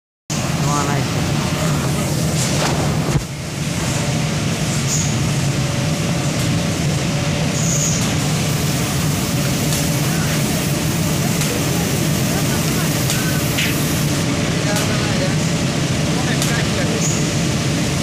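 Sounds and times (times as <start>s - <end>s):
low machine hum: 0.3s - 18.0s
hissing air: 7.6s - 14.2s.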